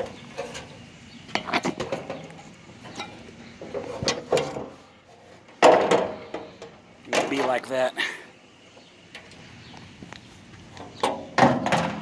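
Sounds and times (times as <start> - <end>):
metal knocks and clanks: 5.5 - 7.6, 10.9 - 12.0.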